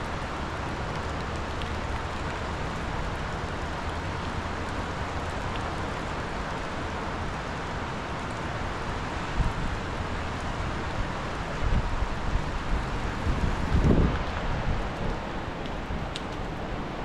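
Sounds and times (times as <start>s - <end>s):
river rushing roar: 0.0s - 17.0s.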